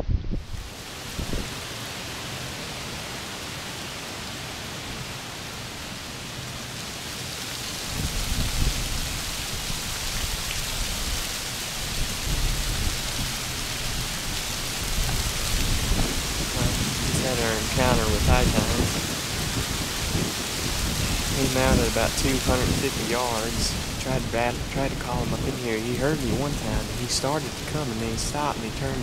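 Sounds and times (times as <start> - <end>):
strong wind rushing: 0.0 - 1.5, 12.1 - 29.0
wind buffeting microphone: 0.0 - 1.6, 7.9 - 29.0.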